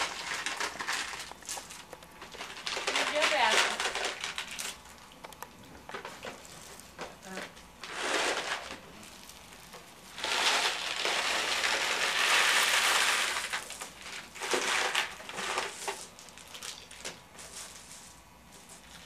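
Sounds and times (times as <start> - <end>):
cellophane crinkling: 0.0 - 19.0.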